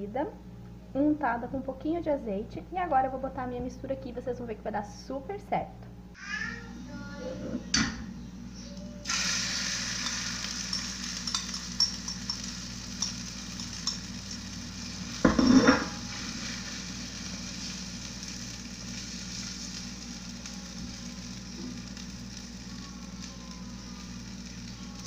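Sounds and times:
egg sizzling in a frying pan: 9.0 - 25.0
fork tapping a pan: 10.7 - 14.1.

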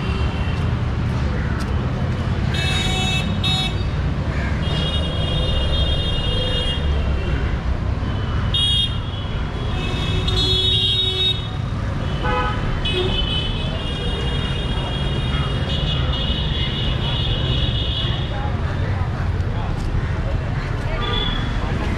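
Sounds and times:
vehicle horns honking: 8.6 - 18.2.

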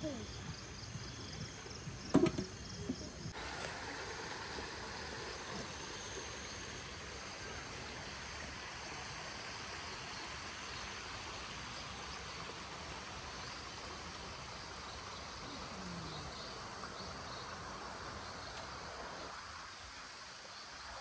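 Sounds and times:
insects chirping: 0.0 - 21.0
outdoor ambience hiss: 0.0 - 21.0.

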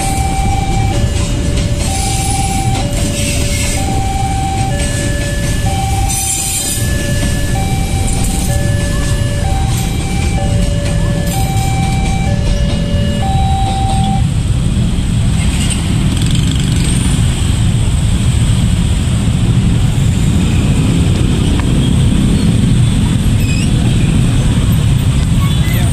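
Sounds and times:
two-note warning tone: 0.0 - 14.3
motorbike engines in traffic: 0.0 - 25.9.

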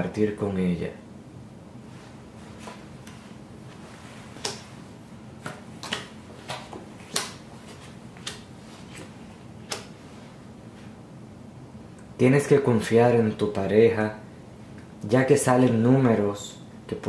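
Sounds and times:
cards snapping on wooden table: 5.4 - 7.4, 8.2 - 9.1, 9.7 - 9.9.

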